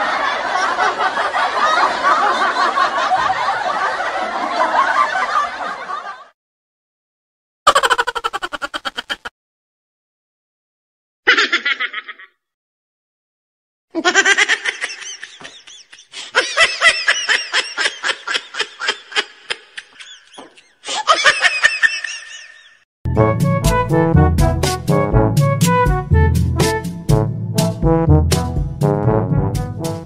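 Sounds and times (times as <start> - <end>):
person laughing: 7.7 - 9.3, 11.3 - 12.4, 14.0 - 22.8.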